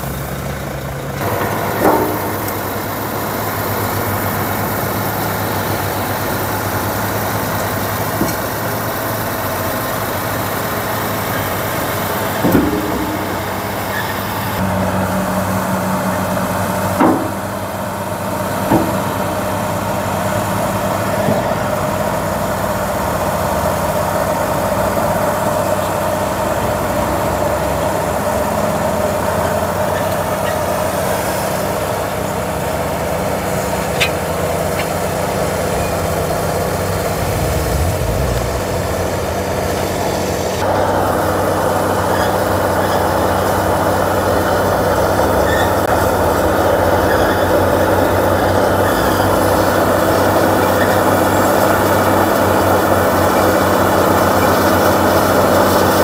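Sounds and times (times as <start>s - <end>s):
bulldozer diesel engine running: 0.0s - 56.0s
steady whine: 1.2s - 20.9s, 33.4s - 41.7s
sharp knocks: 12.4s - 14.6s.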